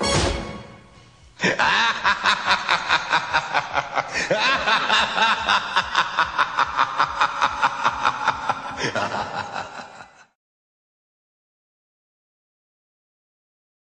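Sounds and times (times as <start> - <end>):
man laughing sinisterly: 1.4 - 10.4.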